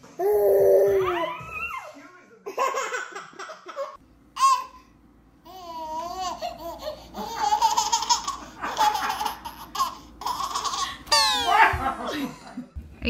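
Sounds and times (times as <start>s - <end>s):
baby babbling cry: 0.2s - 1.9s
baby laughing: 2.5s - 4.8s, 5.5s - 12.2s
baby squealing: 6.1s - 11.6s.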